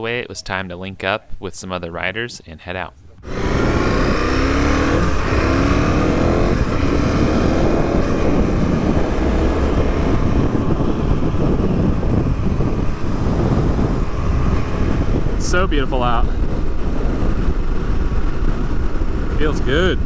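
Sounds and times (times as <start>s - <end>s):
wind and road noise: 0.0s - 20.0s
motorcycle engine accelerating: 3.2s - 20.0s.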